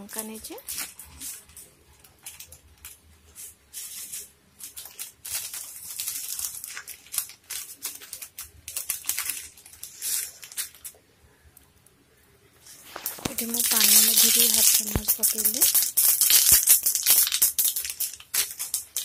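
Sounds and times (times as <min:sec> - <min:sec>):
chillies sizzling in hot oil: 0:12.9 - 0:19.0.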